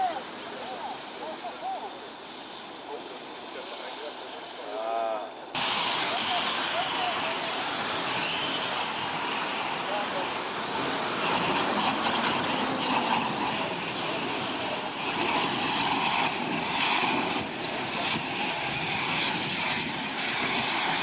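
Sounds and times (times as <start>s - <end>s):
fire hose spraying water: 0.0s - 21.0s.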